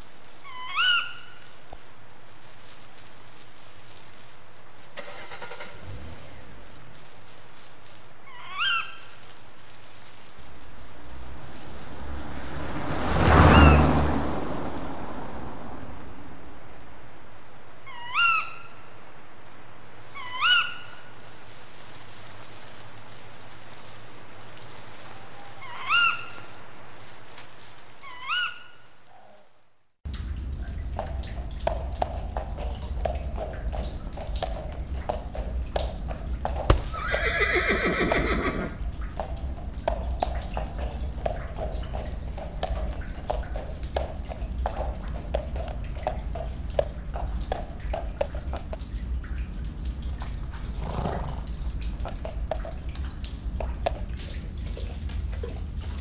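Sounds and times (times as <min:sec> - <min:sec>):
water dripping: 0:00.0 - 0:17.6, 0:18.2 - 0:29.2, 0:30.0 - 0:56.0
rain-like hiss: 0:00.0 - 0:56.0
low rumble: 0:05.0 - 0:07.7
horse whinnying: 0:36.7 - 0:38.8, 0:50.8 - 0:51.4.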